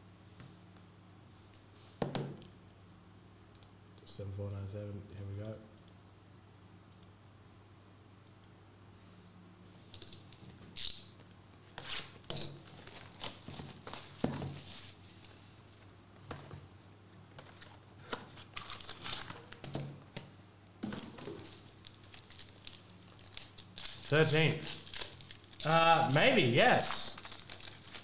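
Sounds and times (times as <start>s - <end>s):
plastic wrap crinkling and ripping: 12.0s - 15.4s, 18.2s - 19.8s, 21.0s - 28.0s.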